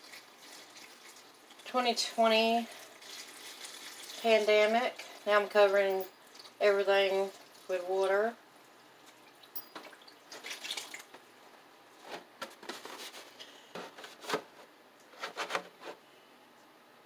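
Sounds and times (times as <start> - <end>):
water splashing into a pot: 0.0 - 1.8, 2.7 - 6.6, 9.0 - 11.2.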